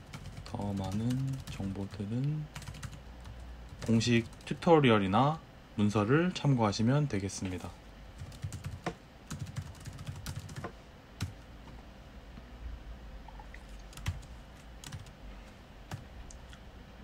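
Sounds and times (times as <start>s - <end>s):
keyboard typing: 0.0s - 4.6s, 8.2s - 11.4s, 13.8s - 15.2s.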